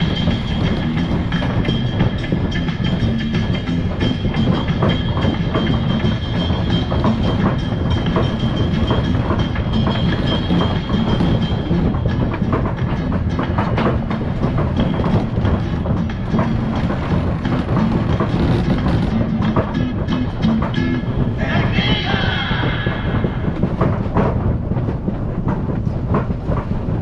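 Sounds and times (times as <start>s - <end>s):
wind rushing: 0.0s - 13.3s
water rushing past hull: 0.0s - 20.4s
clicks and knocks in cockpit: 0.0s - 21.4s.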